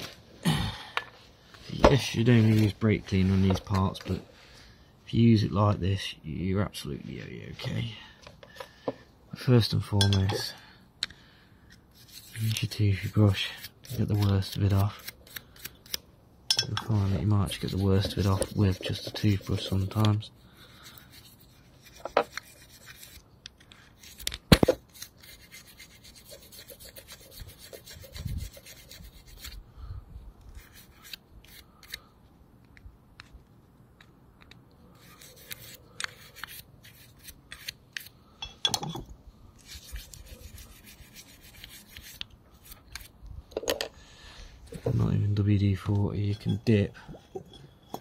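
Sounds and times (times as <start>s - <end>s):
toothbrush scrubbing metal: 16.8s - 23.2s, 24.8s - 29.6s, 35.0s - 37.7s, 39.6s - 43.1s, 46.2s - 48.0s.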